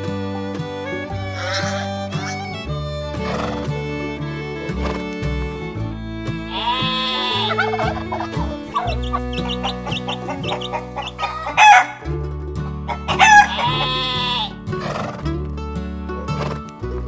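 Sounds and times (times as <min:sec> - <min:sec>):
background music: 0:00.0 - 0:17.0
chicken clucking: 0:01.3 - 0:02.4, 0:06.5 - 0:12.2, 0:12.9 - 0:14.0
loud animal call: 0:01.3 - 0:02.4, 0:06.5 - 0:12.1, 0:12.9 - 0:14.6
rooster crowing: 0:01.4 - 0:02.4, 0:06.5 - 0:12.1, 0:12.9 - 0:14.5.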